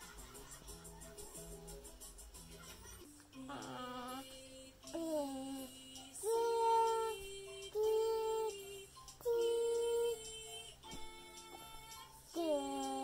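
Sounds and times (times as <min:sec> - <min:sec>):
backing music track: 0:00.0 - 0:13.0
toddler singing: 0:03.4 - 0:13.0.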